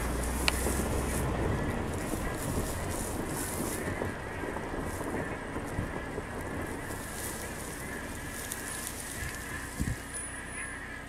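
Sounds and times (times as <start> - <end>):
flock of ducks calling: 0.0 - 11.0
wind buffeting microphone: 0.0 - 11.0.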